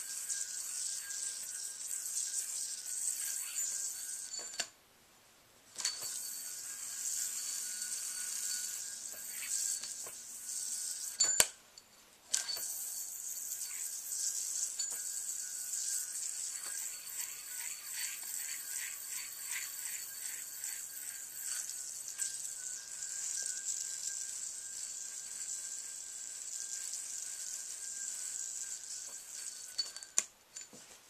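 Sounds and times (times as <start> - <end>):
string rubbing against yoyo: 0.0 - 4.7, 5.8 - 11.6, 12.3 - 30.8
yoyo spinning with high hiss: 0.0 - 4.8, 5.7 - 11.6, 12.2 - 30.8.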